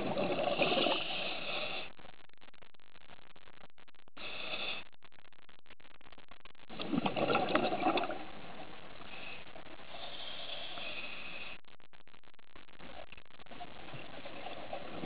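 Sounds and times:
exhaled bubbles underwater: 0.0 - 1.3, 6.7 - 8.3
regulator inhale hiss: 0.6 - 2.0, 4.2 - 4.9, 9.0 - 11.6.

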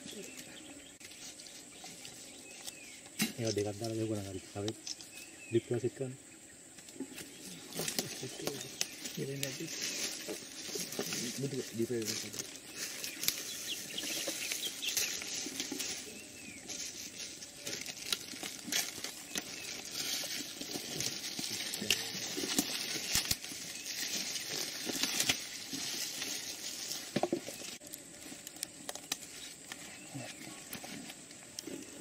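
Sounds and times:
dry leaves crackling and rustling: 7.3 - 32.0.

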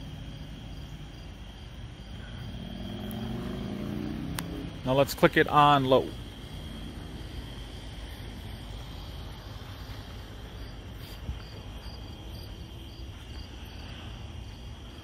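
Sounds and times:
cricket chirping: 0.0 - 15.0
high cricket trill: 0.0 - 15.0
low background rumble: 0.0 - 15.0.

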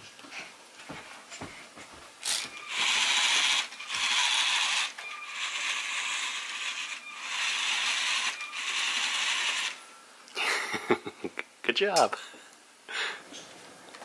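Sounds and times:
robot motors whirring: 2.3 - 9.8.

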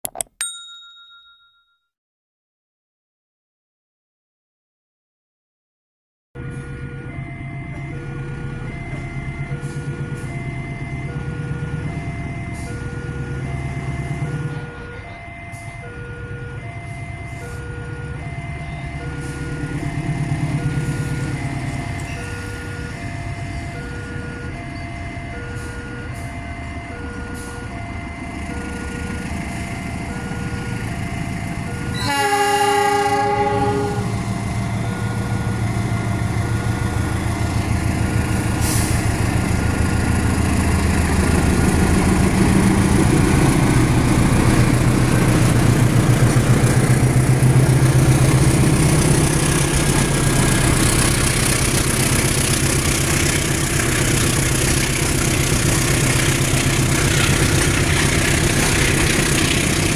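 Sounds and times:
level-crossing warning bell: 0.4 - 1.8, 6.4 - 59.9
diesel locomotive rumble: 6.4 - 59.9
locomotive horn: 31.8 - 34.4.

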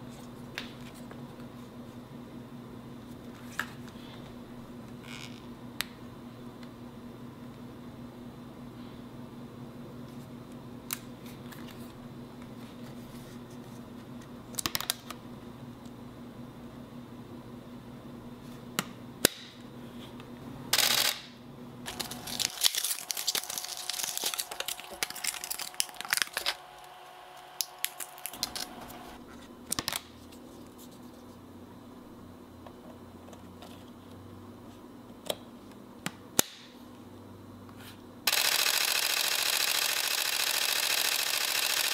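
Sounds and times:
camera clicks: 20.8 - 21.2, 38.3 - 41.9
camera shutter burst: 20.8 - 21.3, 38.3 - 41.9.

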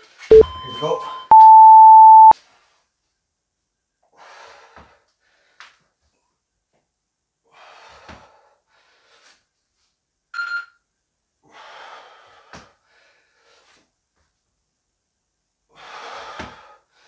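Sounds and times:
short electronic beep: 0.3 - 2.4
man breathing hard: 11.4 - 13.8, 15.7 - 17.0.

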